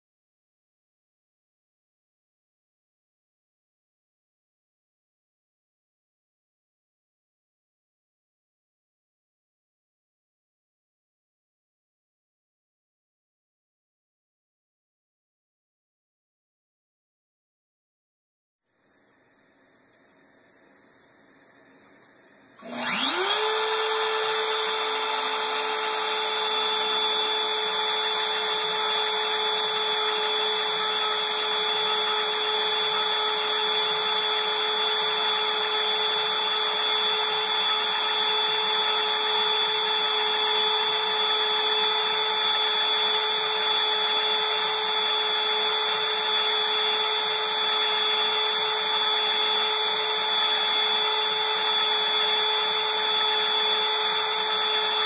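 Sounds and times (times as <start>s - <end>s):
router spindle whining: 21.8s - 55.0s.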